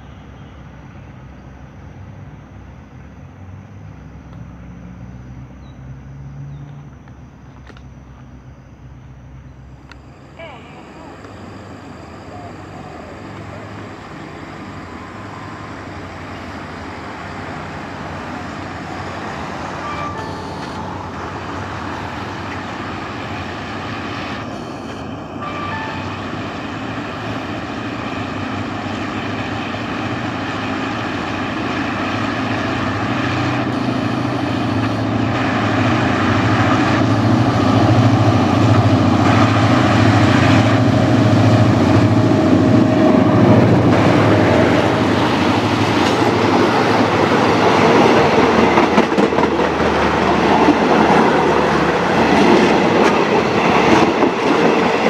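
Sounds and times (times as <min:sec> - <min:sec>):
diesel locomotive engine: 0:00.0 - 0:55.0.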